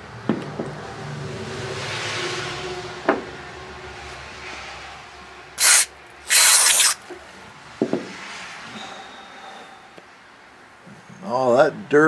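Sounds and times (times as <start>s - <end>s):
aerosol spray hissing: 5.6s - 7.0s.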